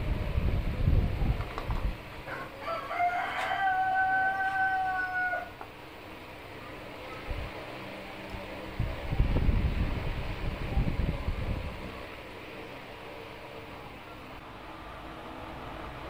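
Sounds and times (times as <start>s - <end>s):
rooster crowing: 2.2s - 5.7s.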